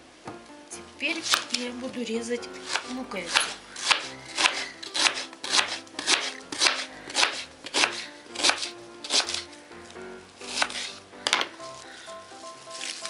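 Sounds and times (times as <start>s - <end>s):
knife chopping onion on board: 1.1s - 1.6s, 2.6s - 9.5s, 10.5s - 11.6s.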